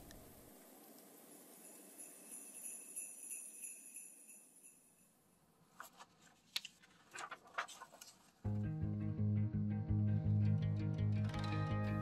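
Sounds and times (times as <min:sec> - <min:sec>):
small bells jingling: 0:01.2 - 0:05.4
paper page turning: 0:05.7 - 0:08.5.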